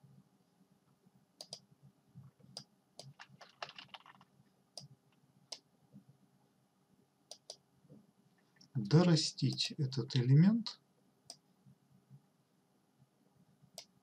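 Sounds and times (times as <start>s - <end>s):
computer mouse clicking: 1.4s - 1.6s, 2.5s - 4.9s, 7.3s - 7.6s.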